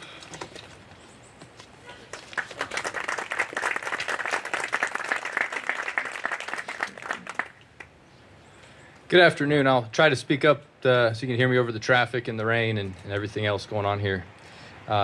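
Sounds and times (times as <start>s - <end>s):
audience applauding: 2.1s - 7.9s.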